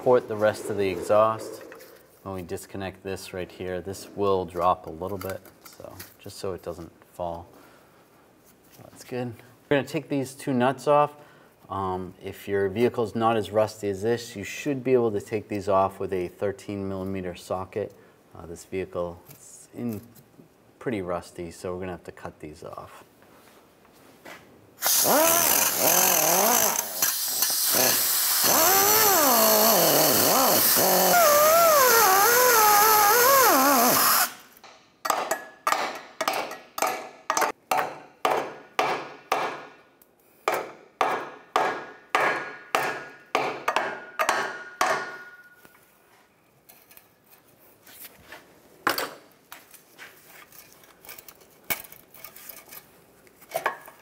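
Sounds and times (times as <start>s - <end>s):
cut-off tool whining: 24.8s - 34.4s
hammer striking steel: 34.6s - 39.7s, 40.5s - 45.6s.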